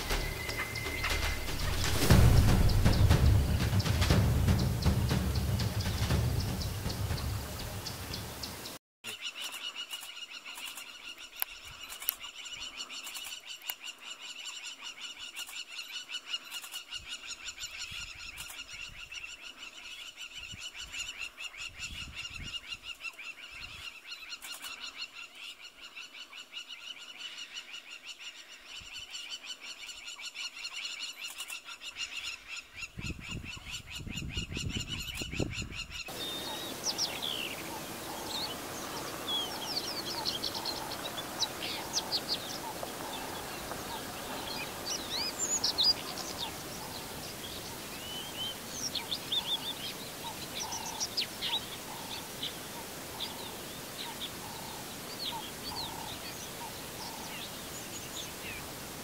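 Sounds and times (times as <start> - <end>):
high pulsing insect chorus: 0.0 - 8.8, 36.1 - 59.0
low rumbles: 0.0 - 8.8, 36.1 - 49.3
birds chirping: 0.0 - 19.7, 32.1 - 59.0.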